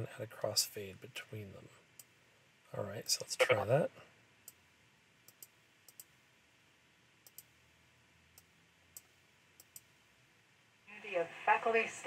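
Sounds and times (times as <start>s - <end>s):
faint room hiss: 0.0s - 12.0s
computer mouse clicking: 5.2s - 6.1s, 7.2s - 7.6s, 8.4s - 9.9s.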